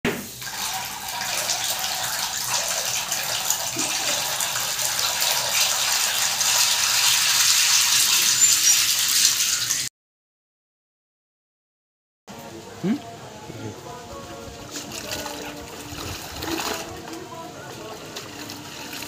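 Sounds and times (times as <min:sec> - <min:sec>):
seed pouring into water bucket: 0:00.4 - 0:09.9, 0:14.7 - 0:19.0.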